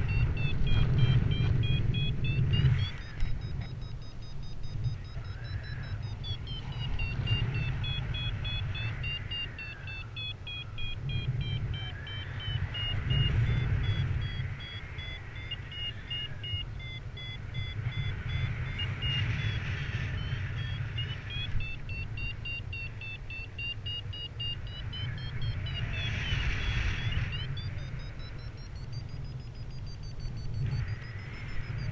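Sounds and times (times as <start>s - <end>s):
variometer beeping: 0.0s - 31.9s
wind on microphone: 0.0s - 31.9s.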